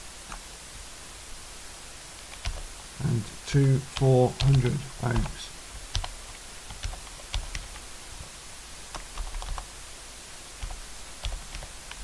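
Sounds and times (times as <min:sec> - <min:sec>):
faint steady hiss: 0:00.0 - 0:12.0
keyboard keys clicking: 0:02.3 - 0:02.7, 0:08.9 - 0:09.6.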